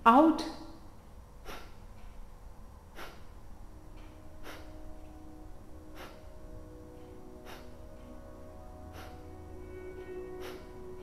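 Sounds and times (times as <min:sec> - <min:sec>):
sharp nasal exhalations: 0:01.4 - 0:01.8, 0:02.9 - 0:03.3, 0:04.4 - 0:04.8, 0:06.0 - 0:06.3, 0:07.4 - 0:07.8, 0:08.9 - 0:09.2.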